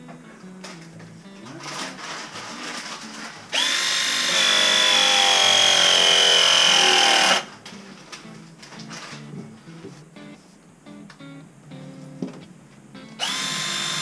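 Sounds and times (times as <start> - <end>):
cordless power tool whining: 2.0 - 7.5, 13.2 - 14.0.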